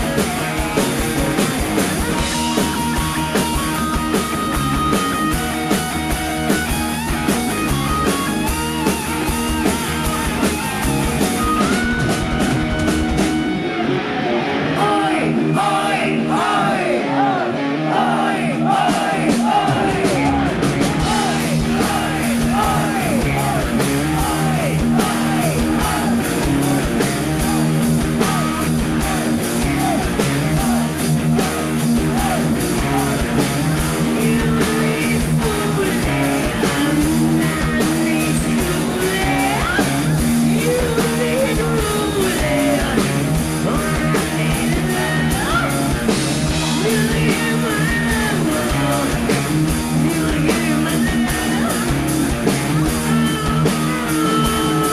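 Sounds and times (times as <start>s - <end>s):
electric guitars: 0.0s - 54.9s
rock band playing live: 0.0s - 54.9s
person singing: 14.6s - 46.0s, 46.7s - 52.0s, 52.7s - 54.9s.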